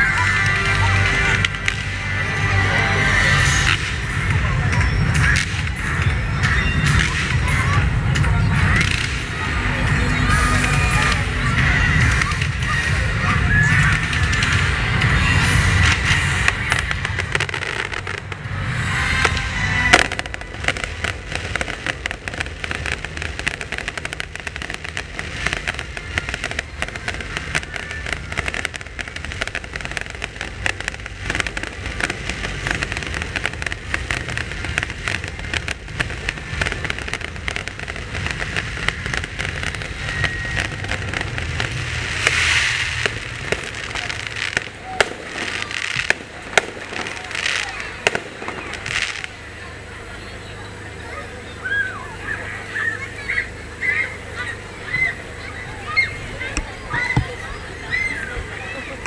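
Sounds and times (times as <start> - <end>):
fireworks crackling and popping: 0.0 - 59.0
firework bang: 3.2 - 49.4.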